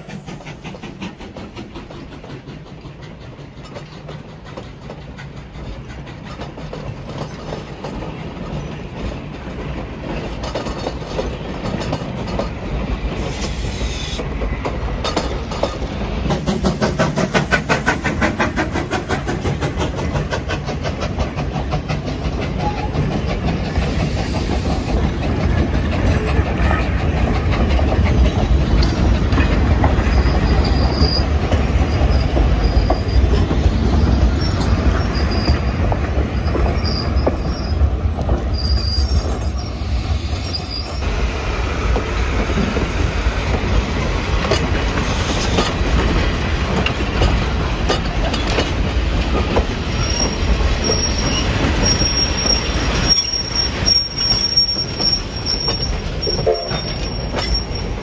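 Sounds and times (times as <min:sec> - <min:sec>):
train wheels rumbling on rails: 0:00.0 - 0:58.0
wheel squeals: 0:30.0 - 0:41.0, 0:49.9 - 0:58.0.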